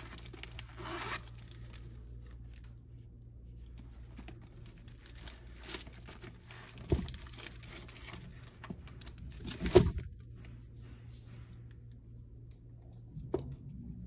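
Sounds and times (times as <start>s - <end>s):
plastic wrap and leather rustling: 0.0s - 10.5s.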